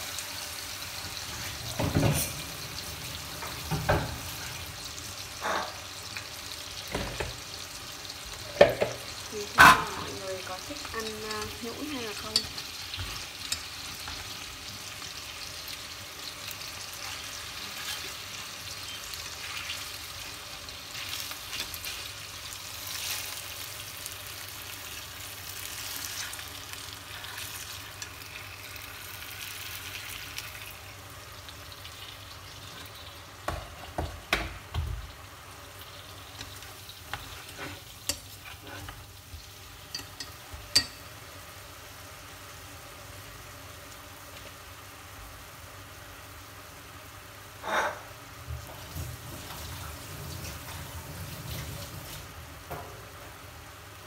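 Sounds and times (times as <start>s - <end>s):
greens sizzling in a pot: 0.0s - 54.0s
chopsticks tapping a pot: 39.9s - 41.1s.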